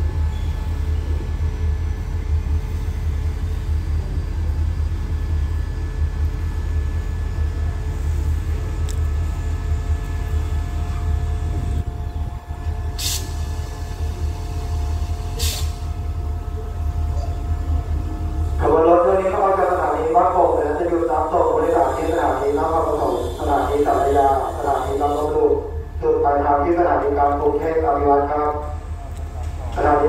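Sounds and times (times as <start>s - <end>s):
diesel locomotive rumbling: 0.0s - 30.0s
air brake hiss: 13.0s - 13.5s, 15.3s - 15.8s.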